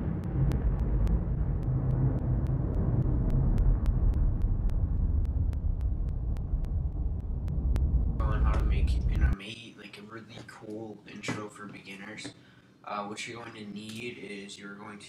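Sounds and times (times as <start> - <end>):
low rumble: 0.0 - 9.4.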